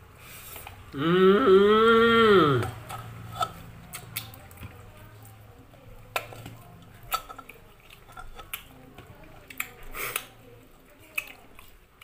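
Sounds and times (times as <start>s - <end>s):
person chewing: 0.4s - 4.7s, 6.2s - 10.4s, 11.0s - 12.0s.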